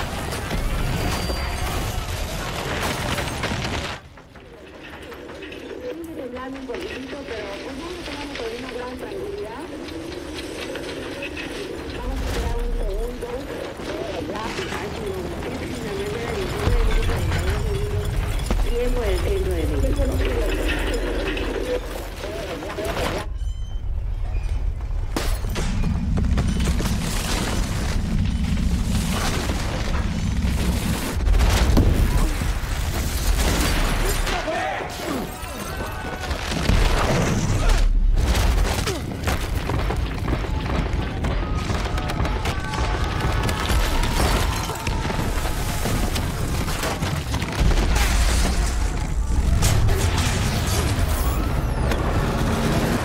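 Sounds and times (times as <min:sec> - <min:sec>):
objects rattling and clattering: 0:00.0 - 0:23.4
rattling and crashing debris: 0:00.0 - 0:53.0
deep earthquake rumble: 0:23.2 - 0:34.0.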